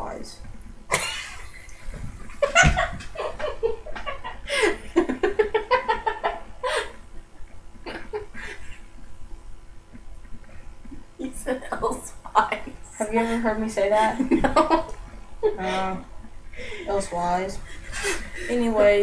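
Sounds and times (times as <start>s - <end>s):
young people laughing: 0.9s - 7.0s, 14.2s - 16.0s
thump: 2.6s - 3.0s.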